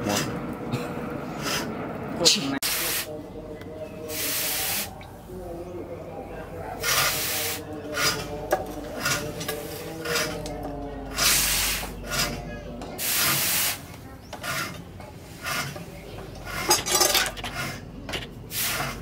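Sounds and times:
hot blade hissing in water: 13.0s - 13.9s.

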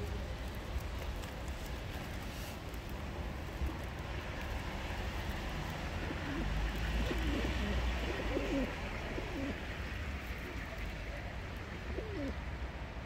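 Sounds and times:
pigeons cooing: 6.0s - 9.6s, 11.9s - 12.4s.

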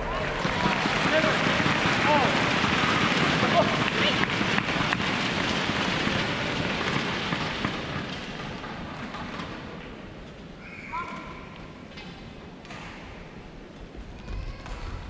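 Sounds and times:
arena crowd applauding: 0.0s - 9.5s.

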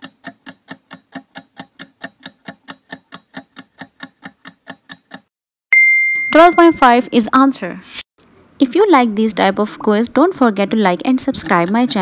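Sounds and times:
clock ticking: 0.0s - 5.3s, 11.3s - 12.0s
steady high beep: 5.7s - 7.2s.

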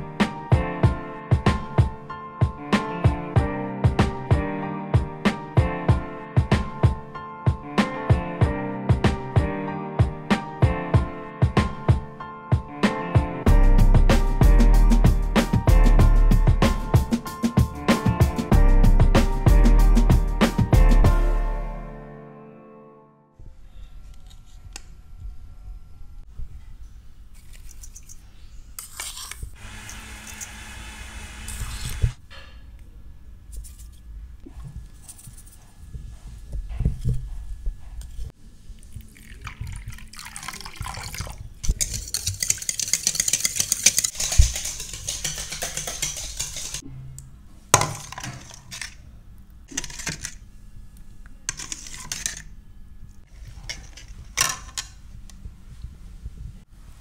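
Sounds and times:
spoon scraping metal bowl: 28.8s - 29.4s, 41.7s - 46.8s, 51.5s - 52.5s
whisk clinking in metal bowl: 41.7s - 46.8s.

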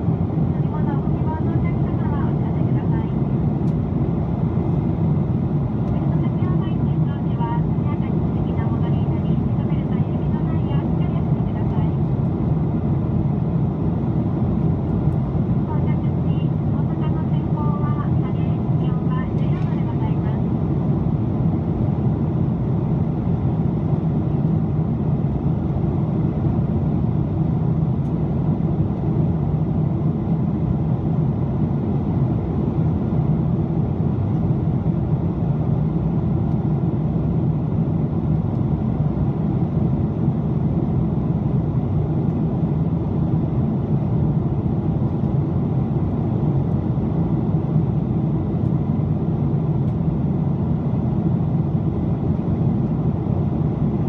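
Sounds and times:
airliner cabin drone: 0.0s - 54.0s.

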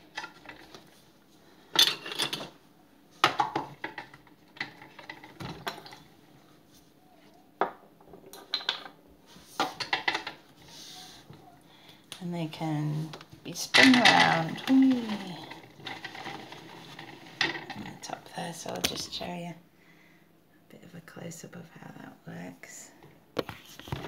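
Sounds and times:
plastic toys clicking and clattering: 13.6s - 18.0s.

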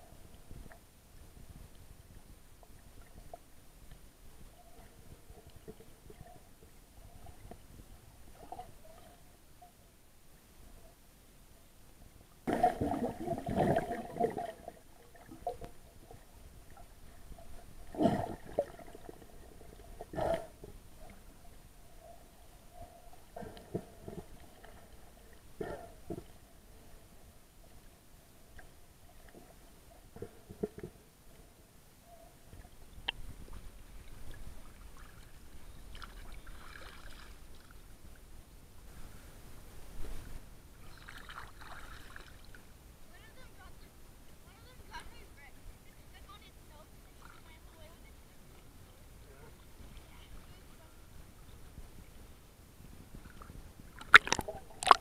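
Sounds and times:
muffled underwater splashing and bubbling: 12.5s - 21.2s, 53.3s - 55.0s
muffled water sloshing: 12.5s - 21.4s.

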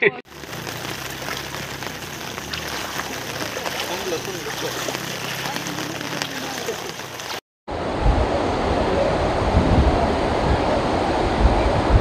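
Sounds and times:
water rushing over spillway: 0.3s - 7.4s
wind buffeting microphone: 7.7s - 12.0s.

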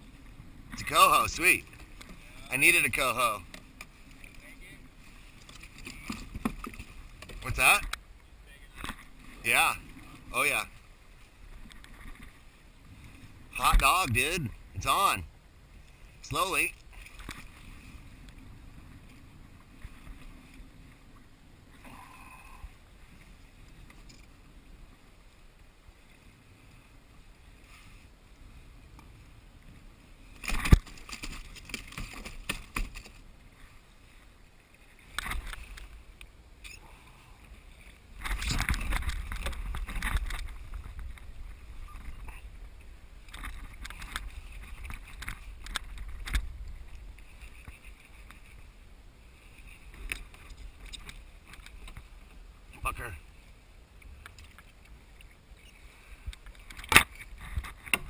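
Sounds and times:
water lapping at hull: 0.0s - 58.0s
fish splashing and knocking: 30.4s - 33.2s.

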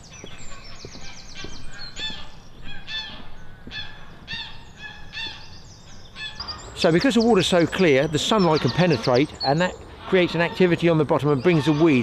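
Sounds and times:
footsteps on wooden bridge: 0.0s - 5.7s
birds calling: 0.0s - 12.0s
songbird trills: 0.0s - 12.0s.

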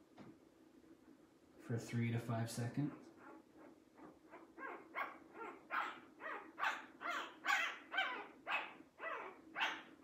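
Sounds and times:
puppy crying in high squeals: 3.2s - 9.9s.

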